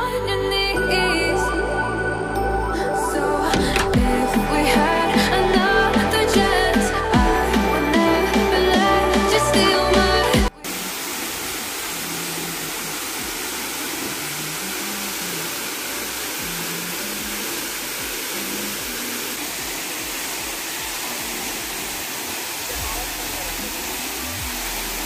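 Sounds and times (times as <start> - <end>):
waterfall rushing: 8.2 - 25.0.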